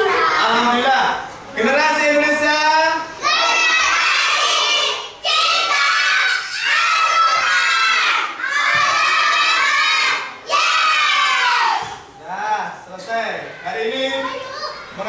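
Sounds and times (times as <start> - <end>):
children chanting in unison: 3.2 - 12.0.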